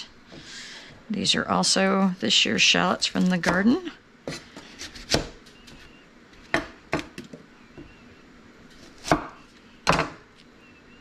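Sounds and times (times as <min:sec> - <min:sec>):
knife chopping on cutting board: 0:04.3 - 0:05.4, 0:08.8 - 0:10.2.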